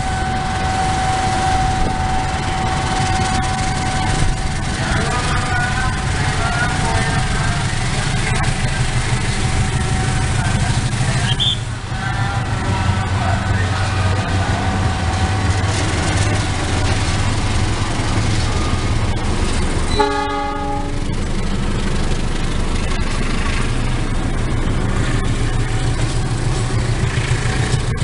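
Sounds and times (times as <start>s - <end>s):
train horn: 0.0s - 7.2s, 11.3s - 16.9s, 19.9s - 21.1s
diesel locomotive engine rumble: 0.0s - 28.0s
train coaches rolling by: 0.0s - 28.0s.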